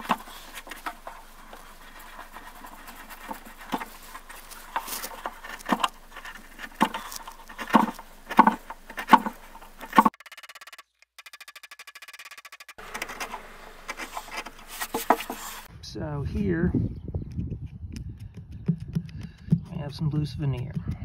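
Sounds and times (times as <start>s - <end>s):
knife scraping wood: 0.0s - 10.2s, 12.0s - 15.7s.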